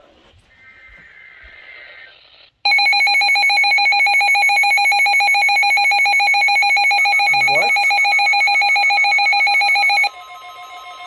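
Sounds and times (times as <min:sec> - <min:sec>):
faint radio audio: 0:00.0 - 0:02.7
rapidly pulsing alert tone: 0:05.6 - 0:11.0.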